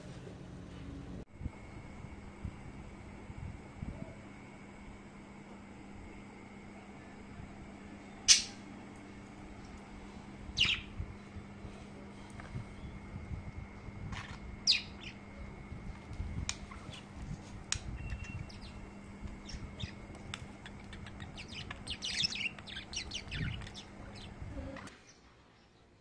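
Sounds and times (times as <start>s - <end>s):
budgerigars chirping: 10.6s - 10.9s, 14.7s - 15.2s, 20.6s - 24.3s.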